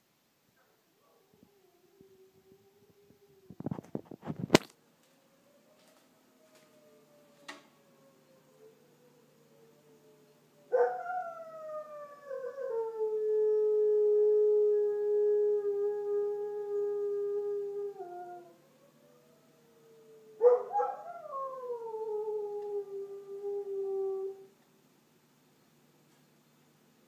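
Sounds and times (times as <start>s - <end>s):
dog howling: 10.7s - 24.5s.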